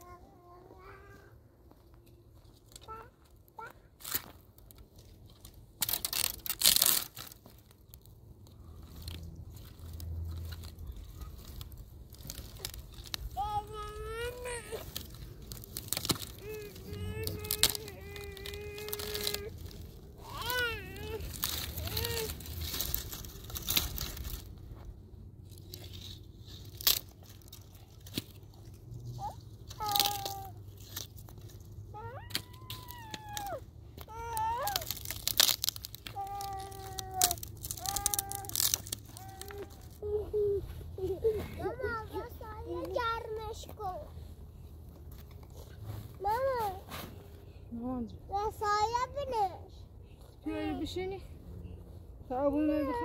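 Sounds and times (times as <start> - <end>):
dry wood crackling and snapping: 1.7 - 40.2.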